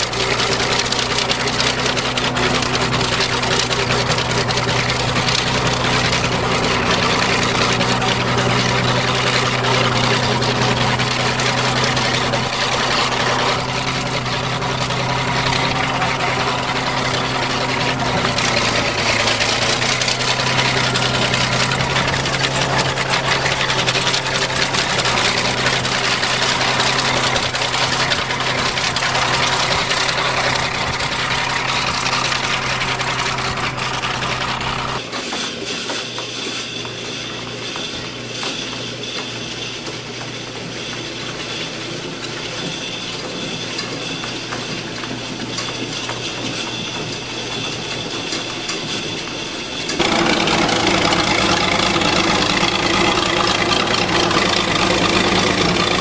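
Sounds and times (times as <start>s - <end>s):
bulldozer engine running: 0.0s - 56.0s.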